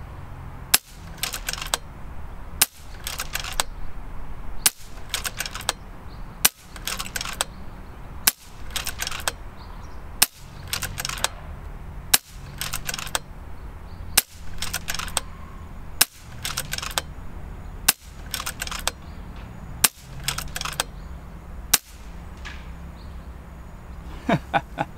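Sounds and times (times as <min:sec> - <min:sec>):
air rifle shots: 0:00.7 - 0:01.8, 0:02.6 - 0:03.8, 0:04.6 - 0:05.8, 0:06.4 - 0:07.6, 0:08.2 - 0:09.4, 0:10.2 - 0:13.3, 0:14.2 - 0:15.3, 0:16.0 - 0:17.1, 0:17.8 - 0:21.0, 0:21.7 - 0:22.8
rifle lever clicking: 0:00.7 - 0:01.8, 0:02.6 - 0:03.7, 0:04.6 - 0:05.8, 0:06.4 - 0:07.6, 0:08.3 - 0:09.4, 0:10.2 - 0:11.4, 0:12.2 - 0:13.3, 0:14.2 - 0:15.3, 0:16.0 - 0:17.1, 0:17.9 - 0:20.9.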